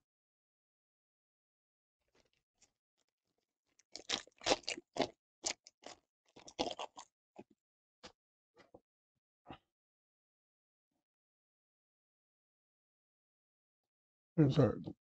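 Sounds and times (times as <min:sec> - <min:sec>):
plastic wrapper crinkling and tearing: 0:03.9 - 0:07.0.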